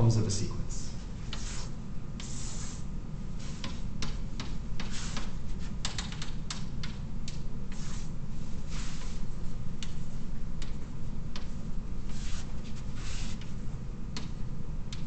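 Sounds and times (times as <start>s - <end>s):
low room hum: 0.0s - 15.0s
pen scratching strokes: 1.3s - 2.8s, 4.8s - 5.3s.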